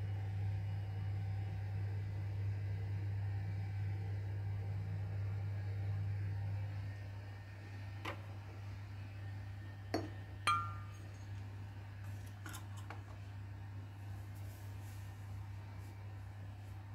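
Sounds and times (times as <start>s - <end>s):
low steady hum: 0.0s - 16.9s
glassy ring: 10.0s - 11.2s.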